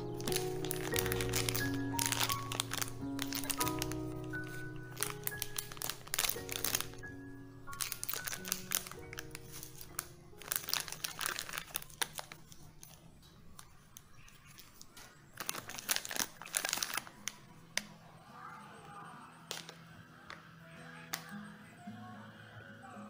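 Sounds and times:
plastic packaging crinkling and tearing: 0.0 - 17.8
soft background music: 0.0 - 23.0.

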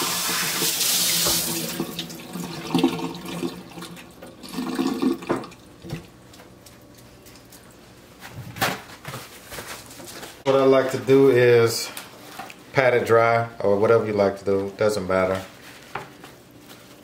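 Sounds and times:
water splashing in steel sink: 0.0 - 6.2.

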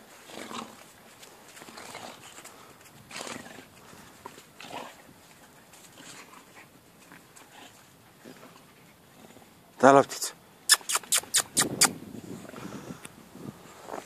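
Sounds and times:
puppies breathing: 1.2 - 9.5.

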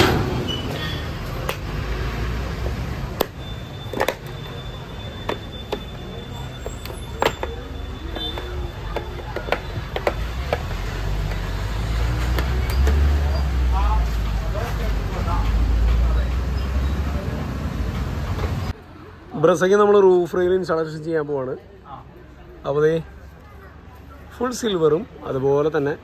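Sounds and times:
plastic clicks and taps: 8.3 - 10.7.

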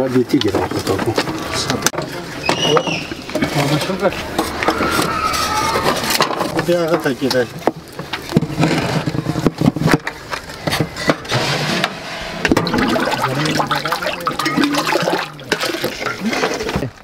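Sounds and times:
liquid sloshing: 12.5 - 16.7.

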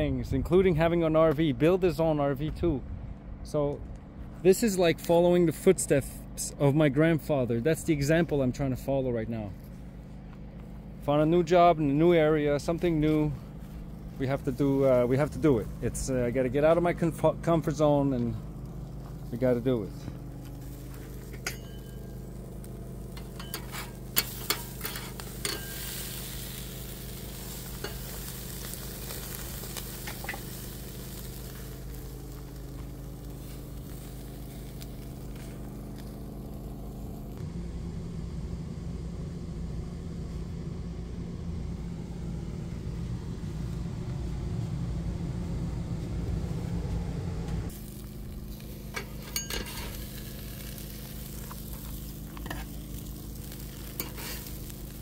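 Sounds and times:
low hum: 0.0 - 55.0
patties sizzling on a grill: 12.1 - 37.4, 47.7 - 55.0.

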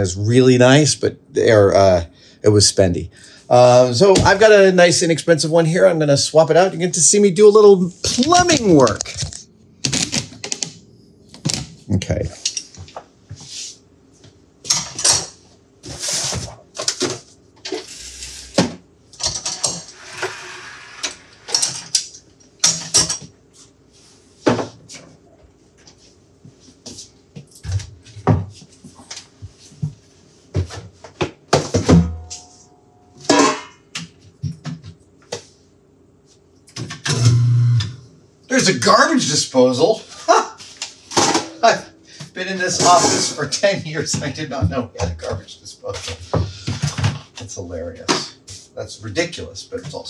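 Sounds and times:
dishes clattering and clinking: 33.2 - 33.9.

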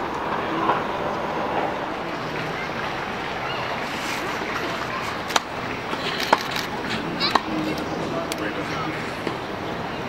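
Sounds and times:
steady outdoor hiss: 0.0 - 10.0
tennis ball struck: 4.4 - 7.6.

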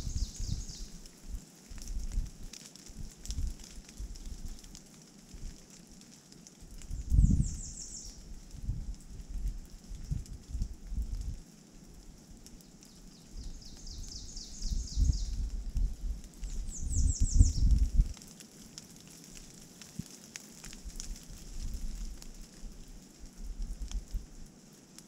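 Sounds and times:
songbird singing: 0.0 - 1.0, 6.9 - 8.3, 12.6 - 15.8, 16.4 - 18.0
wind rumble on microphone: 0.0 - 5.6, 6.6 - 12.6, 13.2 - 18.2, 20.7 - 24.5.

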